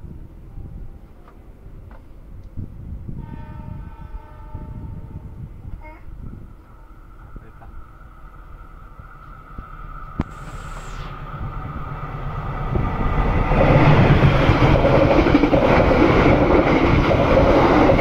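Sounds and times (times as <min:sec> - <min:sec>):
passing train wheel clatter: 0:06.6 - 0:18.0.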